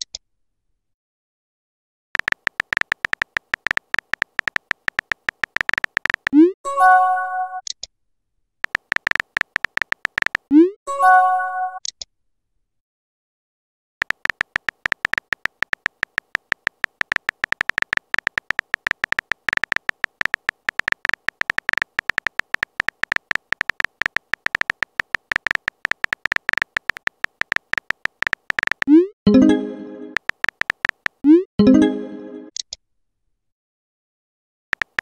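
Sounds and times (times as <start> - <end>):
phone keyboard tap clicks: 2.2 - 6.4, 8.6 - 10.5, 14.0 - 28.9, 30.1 - 31.2, 34.8 - 35.0.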